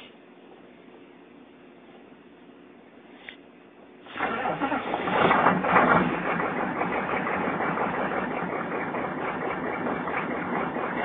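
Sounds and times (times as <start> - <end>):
diesel engine idling: 4.1 - 11.0.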